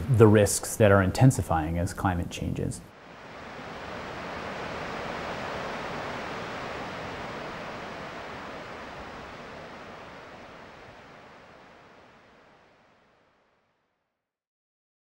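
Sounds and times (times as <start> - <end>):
water rushing down a spillway: 3.0 - 12.4.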